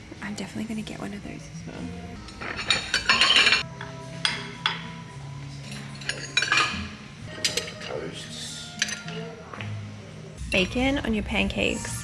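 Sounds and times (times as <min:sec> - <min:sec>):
metal tongs clinking on plate: 0:02.3 - 0:03.6, 0:05.6 - 0:08.0, 0:08.8 - 0:09.3
ceramic plates clattering: 0:02.4 - 0:04.9, 0:05.7 - 0:08.1.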